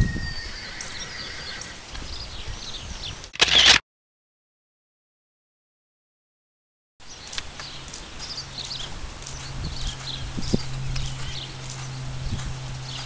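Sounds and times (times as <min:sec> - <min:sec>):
birds chirping: 0:00.0 - 0:03.8, 0:07.0 - 0:13.0
outdoor background noise: 0:00.0 - 0:03.8, 0:07.0 - 0:13.0.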